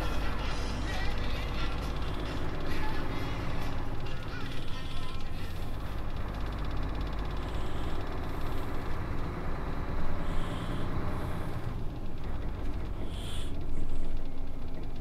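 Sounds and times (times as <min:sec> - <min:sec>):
truck engine rumbling: 0:00.0 - 0:15.0.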